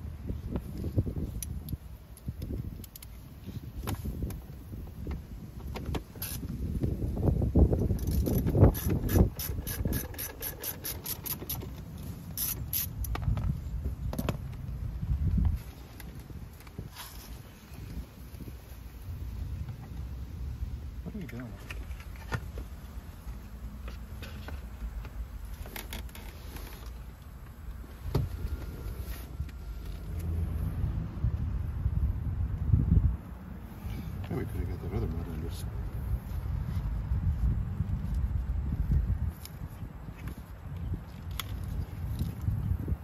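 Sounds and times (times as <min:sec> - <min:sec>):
low steady rumble: 0:00.0 - 0:43.0
hand ratchet clicking: 0:08.0 - 0:11.8, 0:12.4 - 0:13.1.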